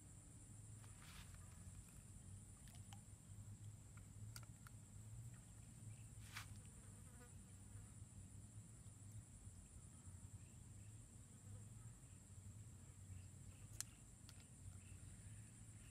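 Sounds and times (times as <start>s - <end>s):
insects droning: 0.0s - 15.9s.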